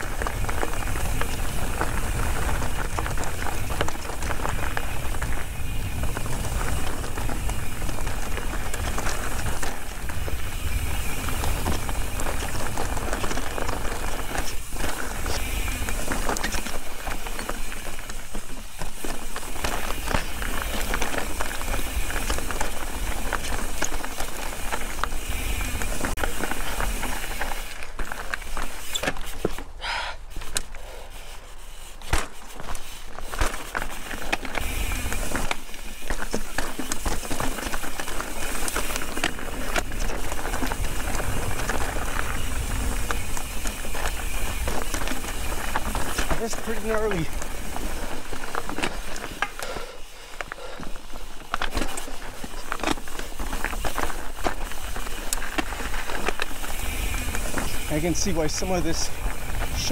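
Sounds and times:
mountain bike rattling over rocks: 0.0s - 59.9s.

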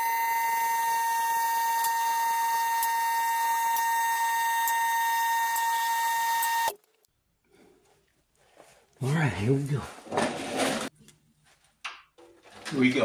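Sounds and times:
hydraulic power unit whining: 0.0s - 6.8s.

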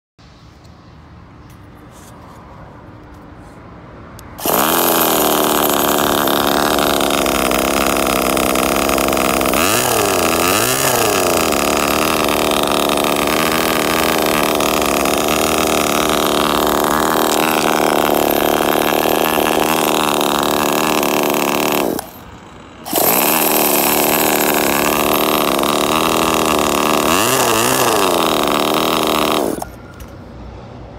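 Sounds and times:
model engine running and revving: 4.4s - 29.8s.

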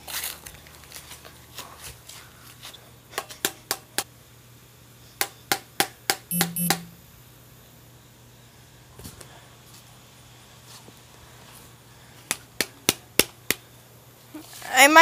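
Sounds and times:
short buzzy tones: 6.3s - 7.1s.

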